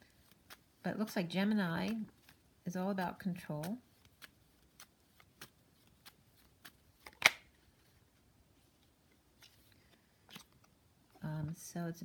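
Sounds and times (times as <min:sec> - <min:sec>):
cards clicking and tapping: 0:01.8 - 0:07.5.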